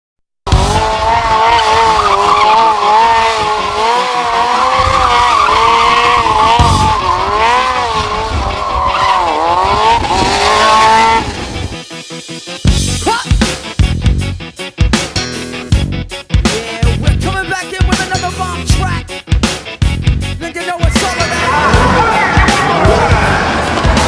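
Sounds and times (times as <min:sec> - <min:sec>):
motorcycle engine running: 0:00.5 - 0:08.6
motorcycle tyre squealing: 0:00.5 - 0:11.7, 0:21.0 - 0:24.0.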